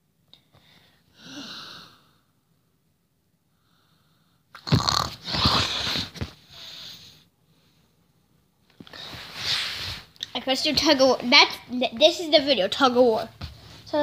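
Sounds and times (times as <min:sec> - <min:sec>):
boy huffing and snorting: 0:04.6 - 0:06.6.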